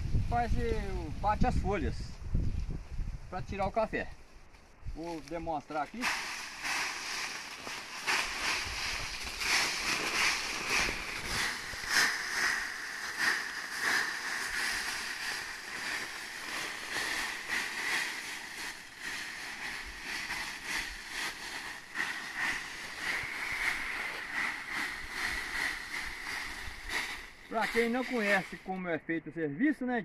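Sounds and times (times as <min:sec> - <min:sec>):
rake scraping dry leaves: 0:05.9 - 0:28.8.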